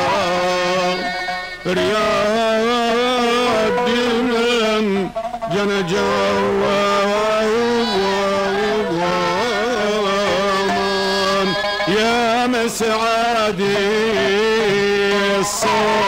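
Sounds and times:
melodic music with held notes: 0:00.0 - 0:12.5.

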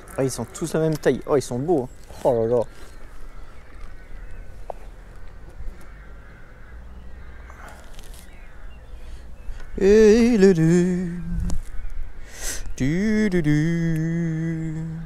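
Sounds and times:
low outdoor background: 0:00.0 - 0:15.0
man humming a wavering note: 0:09.8 - 0:11.6, 0:12.8 - 0:15.0.

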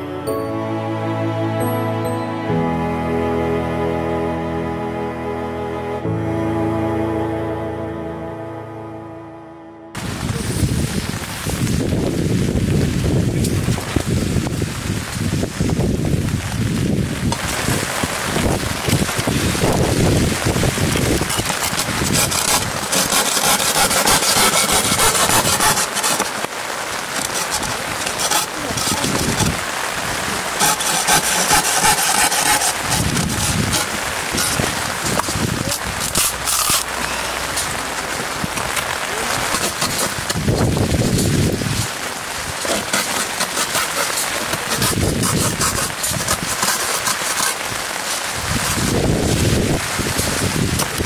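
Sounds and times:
hand saw cutting wood: 0:21.2 - 0:26.5, 0:27.1 - 0:29.6, 0:30.5 - 0:36.9, 0:39.5 - 0:40.4, 0:42.6 - 0:47.7.

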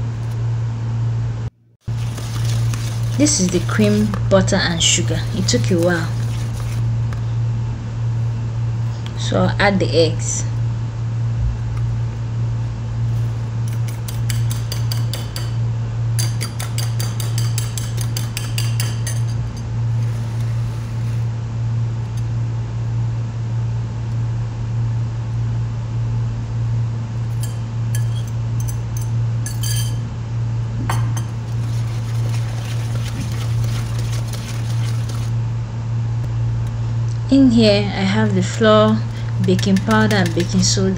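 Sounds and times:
steady low hum: 0:00.0 - 0:40.9
fork clinking against ceramic bowl: 0:27.4 - 0:30.0.

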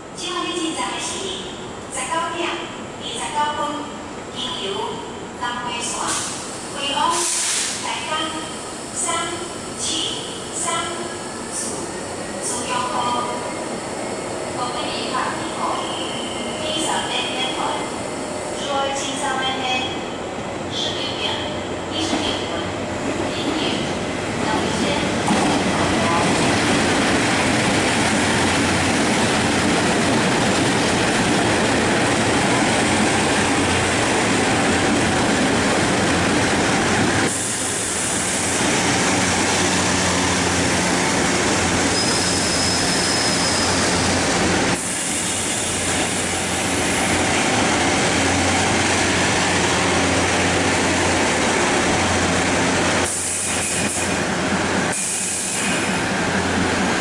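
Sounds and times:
train wheels rumbling on rail: 0:04.4 - 0:57.0
high squeal: 0:41.9 - 0:44.2.

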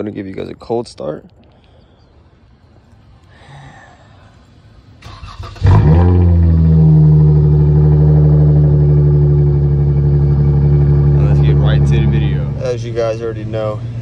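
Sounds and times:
car engine starting and idling: 0:04.8 - 0:14.0.

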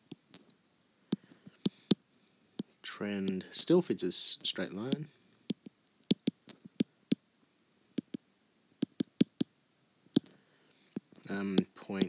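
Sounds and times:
stylus tapping on tablet screen: 0:04.9 - 0:07.2, 0:08.0 - 0:08.2, 0:08.8 - 0:09.5.

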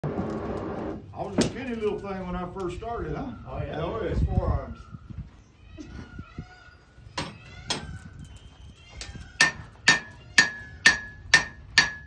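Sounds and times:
hammer striking iron on anvil: 0:09.4 - 0:12.0.

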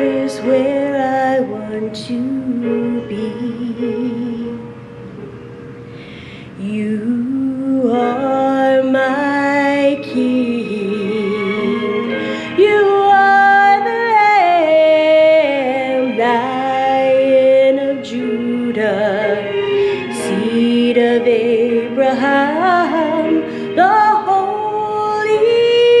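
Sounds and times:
woman singing worship song: 0:00.0 - 0:04.7, 0:06.4 - 0:19.4
instrumental accompaniment: 0:00.0 - 0:26.0.

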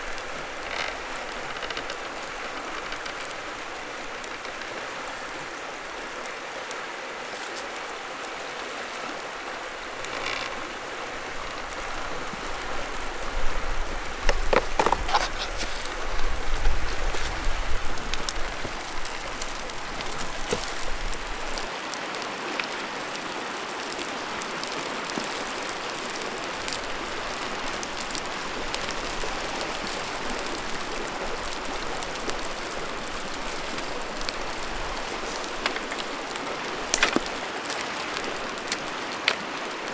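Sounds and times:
fire crackling: 0:00.0 - 0:39.9
river rapids rushing: 0:00.0 - 0:39.9
wood knocking and rustling: 0:14.2 - 0:21.7.

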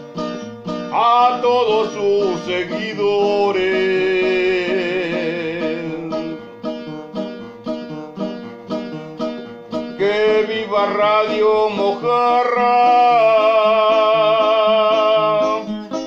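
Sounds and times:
acoustic guitar strumming: 0:00.0 - 0:16.0
man singing: 0:00.9 - 0:06.6, 0:09.9 - 0:16.0.

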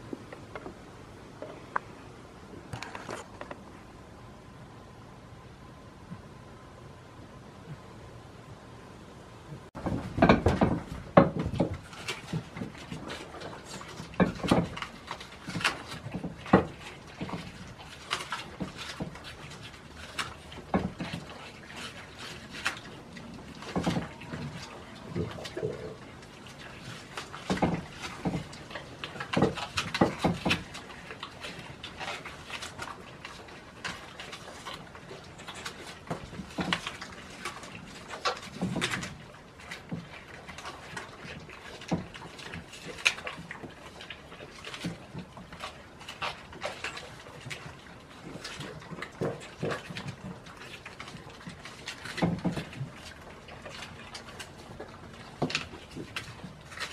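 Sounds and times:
goats knocking against bowls: 0:09.8 - 0:12.9
goats crunching apples: 0:10.7 - 0:56.9.

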